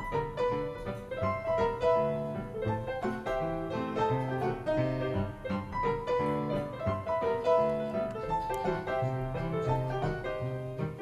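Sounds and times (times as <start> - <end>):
lively piano tune: 0.0 - 11.0.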